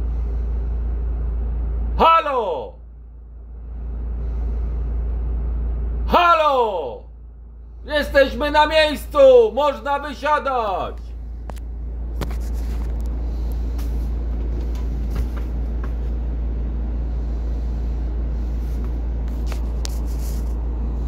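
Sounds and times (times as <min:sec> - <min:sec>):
bus engine rumbling: 0:00.0 - 0:21.0
faint clicks and rattles: 0:11.4 - 0:16.2.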